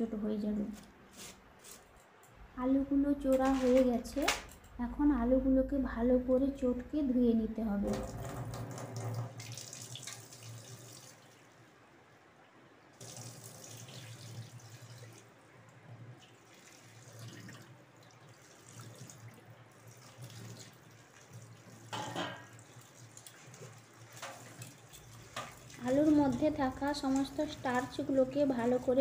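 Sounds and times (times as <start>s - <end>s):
water splashing: 16.2s - 29.0s.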